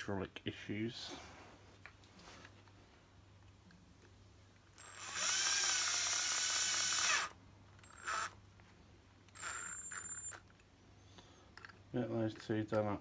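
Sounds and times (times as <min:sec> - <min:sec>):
cordless drill whining: 0:04.8 - 0:08.4, 0:09.3 - 0:10.4.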